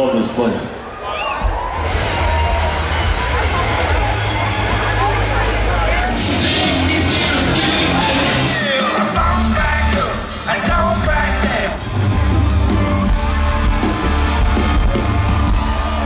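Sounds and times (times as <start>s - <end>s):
live rock band playing: 2.1s - 16.0s
man singing and yelling: 6.1s - 11.9s.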